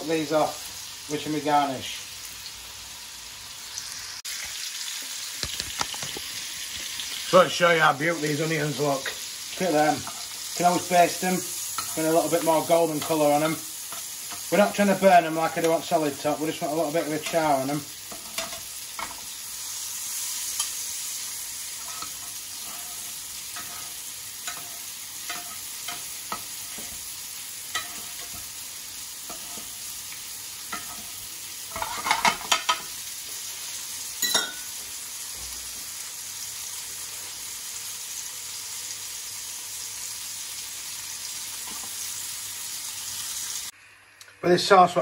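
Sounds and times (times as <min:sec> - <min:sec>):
butter sizzling in a frying pan: 0:00.0 - 0:43.8
metal spoon tapping a pan: 0:27.7 - 0:28.4, 0:34.2 - 0:34.7.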